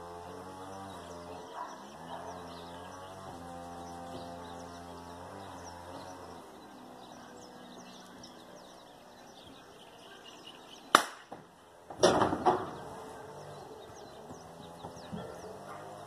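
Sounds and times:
birds chirping faintly: 0:00.0 - 0:16.0
gunshot: 0:11.0 - 0:11.3.

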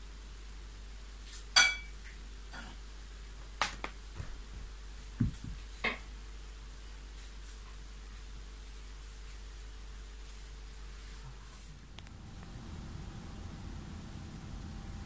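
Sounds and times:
dull thump: 0:04.2 - 0:06.0
click: 0:12.0 - 0:12.2.

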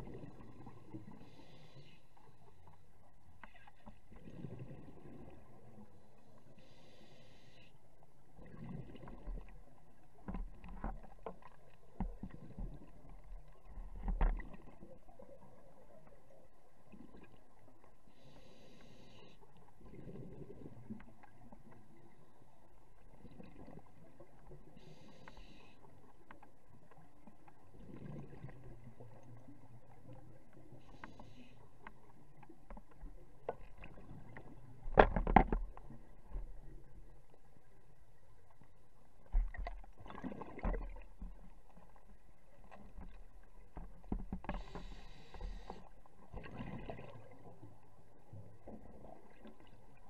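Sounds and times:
regulator inhale hiss: 0:01.1 - 0:02.2, 0:06.5 - 0:07.8, 0:18.1 - 0:19.4, 0:24.8 - 0:25.8, 0:30.8 - 0:31.6, 0:44.5 - 0:45.9.

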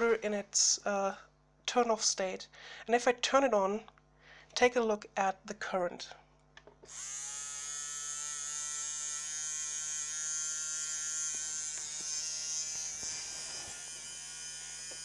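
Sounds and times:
small electric motor whining: 0:06.9 - 0:15.0.

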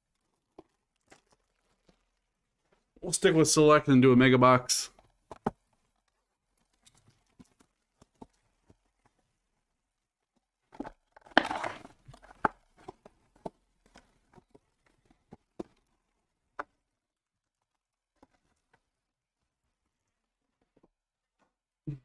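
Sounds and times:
wrappers crinkling and tapping: 0:00.0 - 0:03.0, 0:05.0 - 0:09.4.

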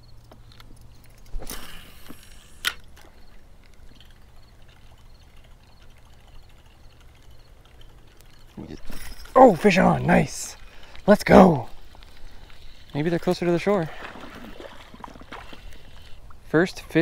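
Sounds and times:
watery splash: 0:13.6 - 0:15.7.

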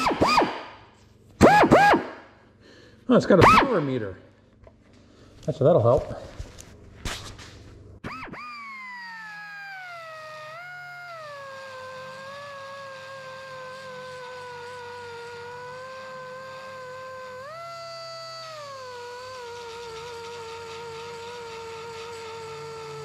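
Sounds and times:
air belt sander whining: 0:08.1 - 0:23.0.

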